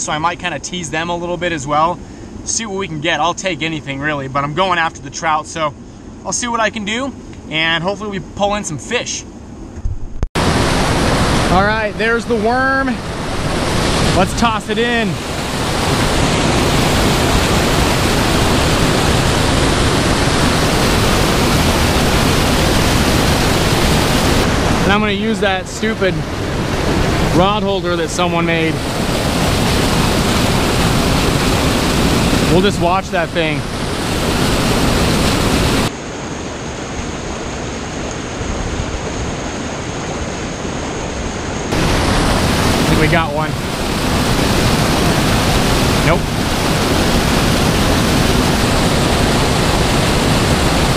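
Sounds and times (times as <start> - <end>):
white water churning from spillway: 10.4 - 50.9.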